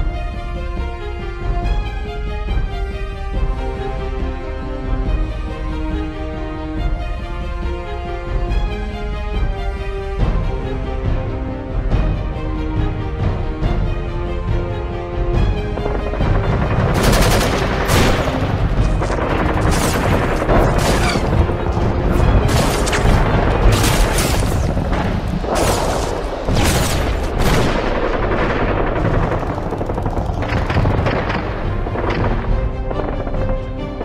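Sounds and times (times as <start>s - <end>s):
dramatic music: 0.0s - 34.0s
gunfire: 16.2s - 33.4s
explosions: 16.9s - 33.4s.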